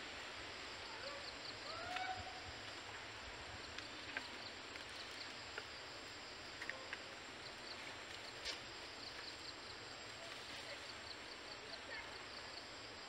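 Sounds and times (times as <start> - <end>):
insects chirping: 0.0 - 13.0
steady hiss: 0.0 - 13.0.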